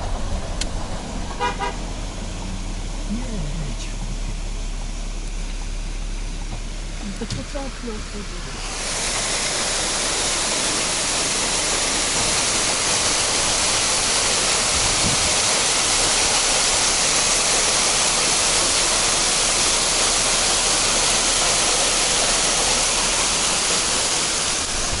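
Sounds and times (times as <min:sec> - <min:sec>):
waterfall rushing: 0:08.5 - 0:25.0.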